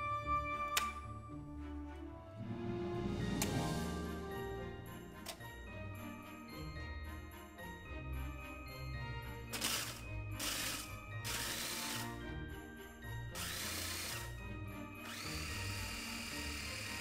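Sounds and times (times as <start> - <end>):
food processor grinding: 9.5 - 12.2, 13.4 - 14.4, 15.0 - 17.0.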